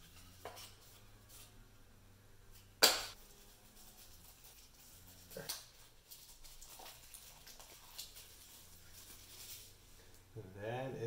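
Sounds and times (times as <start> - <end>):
handling cardboard and plastic wrap: 3.1 - 10.2.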